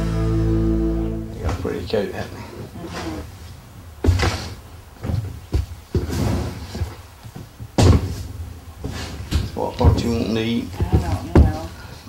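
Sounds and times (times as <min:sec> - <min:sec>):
dull thumps and knocks: 0:04.0 - 0:11.7.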